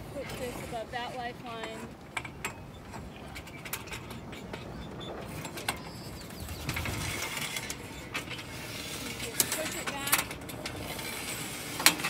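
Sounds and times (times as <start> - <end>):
outdoor background noise: 0.0 - 12.0
mast rigging clicks and knocks: 1.6 - 11.2.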